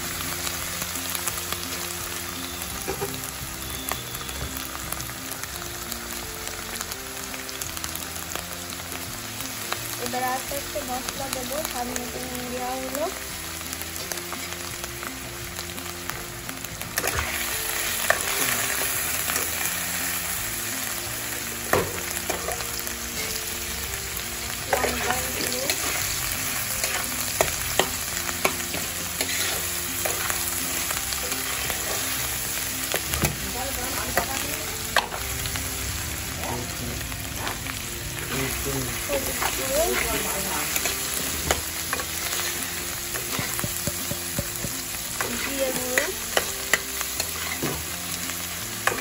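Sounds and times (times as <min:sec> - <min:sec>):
food sizzling in hot oil: 0:00.0 - 0:49.0
metal spatula scraping a pan: 0:24.7 - 0:32.2, 0:45.2 - 0:47.9.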